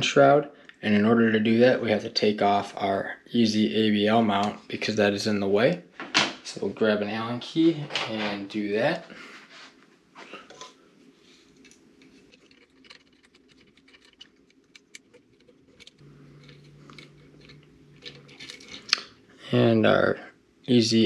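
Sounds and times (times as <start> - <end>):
steady faint hum: 0.0 - 21.0
low hum: 10.7 - 21.0.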